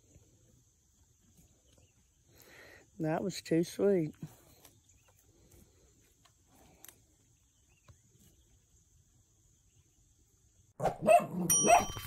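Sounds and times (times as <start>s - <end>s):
pasture ambience: 0.0s - 12.0s
bell-like ding jingle: 11.5s - 12.0s.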